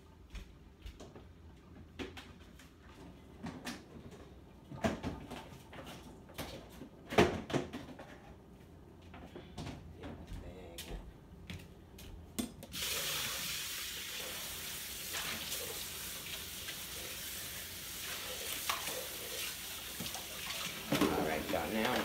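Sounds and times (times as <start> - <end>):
faucet water running: 12.8 - 22.0
water splashing into plastic container: 18.1 - 22.0.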